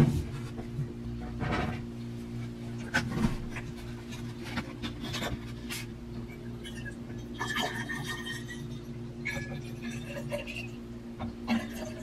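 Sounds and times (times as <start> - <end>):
water pouring into tumbler: 6.5 - 10.8.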